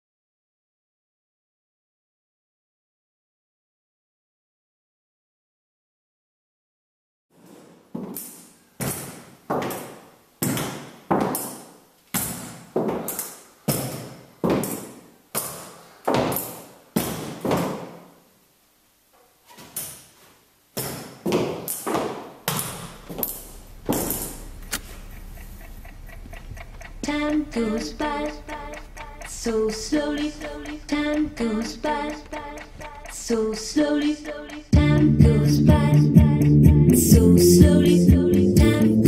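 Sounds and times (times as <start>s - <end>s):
low hum: 22.8s - 39.0s.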